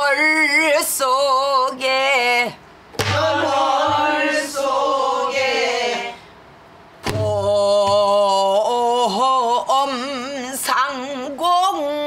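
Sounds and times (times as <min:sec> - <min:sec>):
barrel drum strokes: 0:03.0 - 0:04.5.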